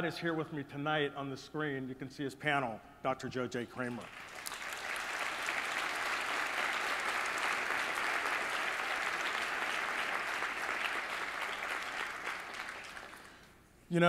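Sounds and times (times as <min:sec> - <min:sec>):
audience applauding: 0:04.0 - 0:13.5.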